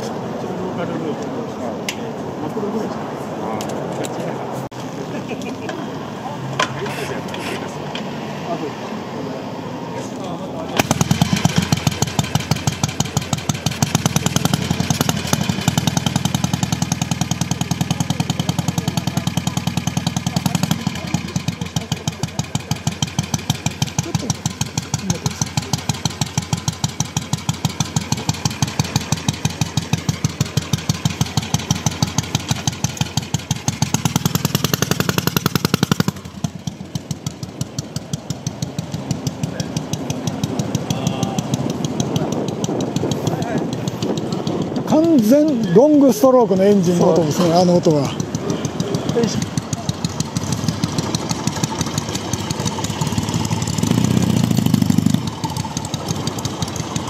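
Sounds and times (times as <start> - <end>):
motorcycle engine exhaust beats: 10.7 - 57.0.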